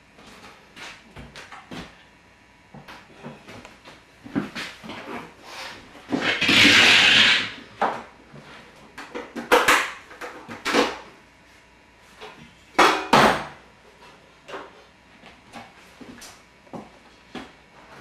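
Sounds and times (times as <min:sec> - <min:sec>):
scraping slide: 0:05.0 - 0:07.6.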